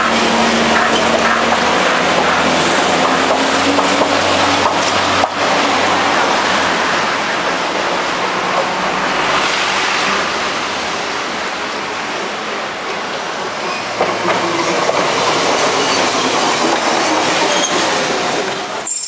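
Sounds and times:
tram running on rails: 0.0 - 19.0.

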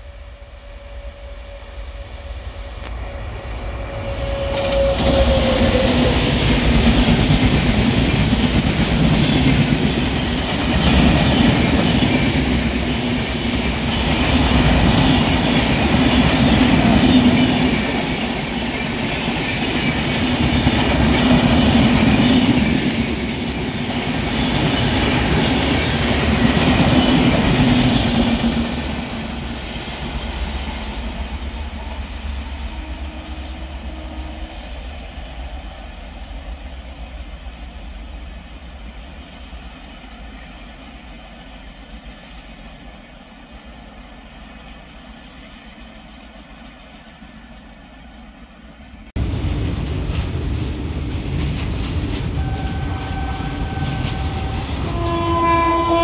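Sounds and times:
train horn: 0.0 - 6.6, 31.0 - 34.8, 52.3 - 56.0
train wheels on rails: 0.0 - 56.0.

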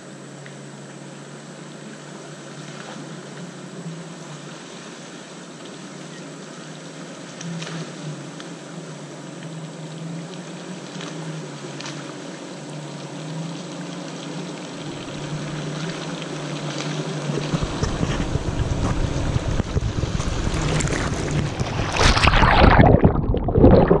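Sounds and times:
sloshing of water and mud: 13.3 - 24.0
pickup truck engine: 17.3 - 21.6.

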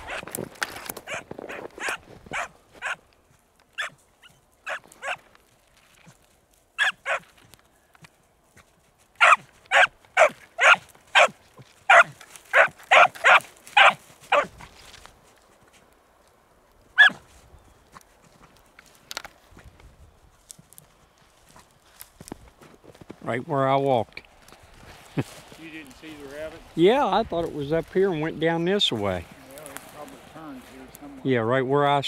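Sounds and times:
hound baying: 0.0 - 0.3, 1.0 - 3.0, 3.8 - 5.3, 6.8 - 7.3, 9.2 - 14.6, 17.0 - 17.3.

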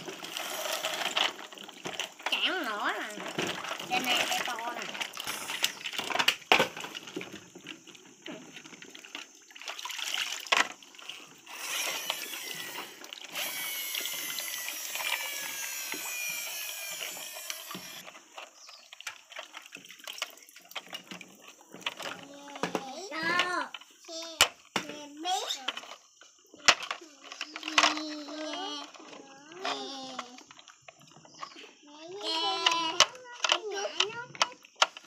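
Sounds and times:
stream of water splashing: 0.0 - 22.2
water sloshing in a basin: 0.0 - 35.0.

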